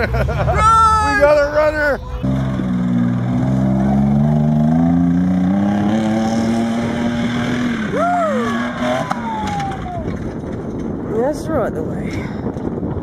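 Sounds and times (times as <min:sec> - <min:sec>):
engine revving hard: 0:02.2 - 0:10.0.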